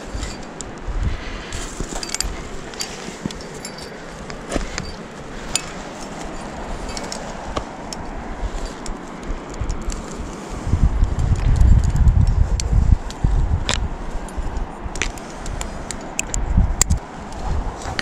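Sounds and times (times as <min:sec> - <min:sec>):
climbing hardware clinking: 0:00.0 - 0:00.8, 0:01.5 - 0:10.2
wind rumble on microphone: 0:00.0 - 0:18.0.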